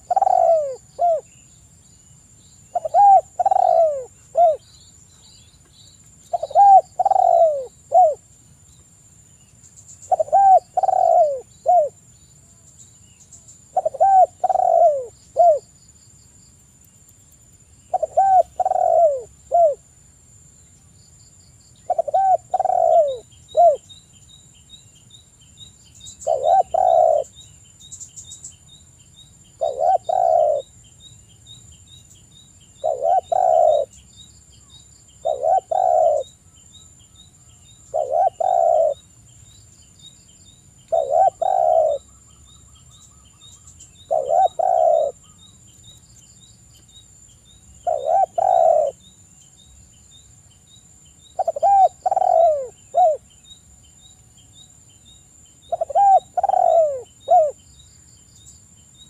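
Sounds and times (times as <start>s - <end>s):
dove cooing: 0.0s - 1.3s, 2.7s - 4.6s, 6.3s - 8.2s, 10.1s - 12.0s, 13.7s - 15.7s, 17.9s - 19.8s, 21.9s - 23.9s, 26.2s - 27.3s, 29.6s - 30.7s, 32.8s - 34.0s, 35.2s - 36.4s, 37.9s - 39.0s, 40.9s - 42.1s, 44.0s - 45.4s, 47.8s - 49.0s, 51.4s - 53.2s, 55.7s - 57.6s.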